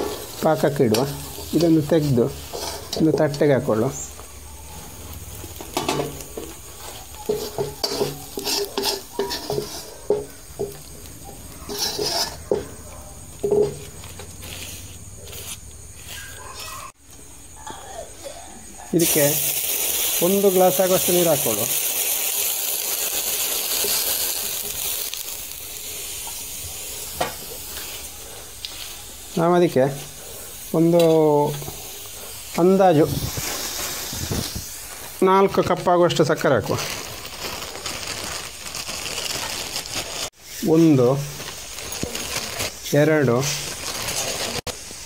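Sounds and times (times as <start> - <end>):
metal spoon scraping a pan: 0.0 - 3.8, 5.5 - 12.8
water hissing in hot wok: 0.0 - 15.5, 18.8 - 45.0.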